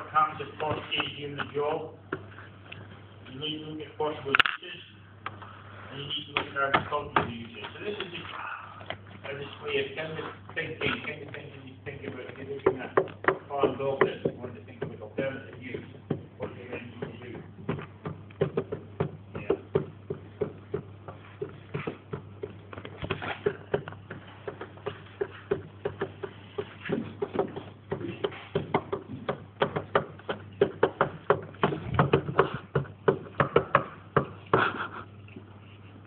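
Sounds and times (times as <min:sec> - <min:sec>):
steady low hum: 0:00.0 - 0:36.0
irregular tapping and clicking: 0:10.5 - 0:35.5.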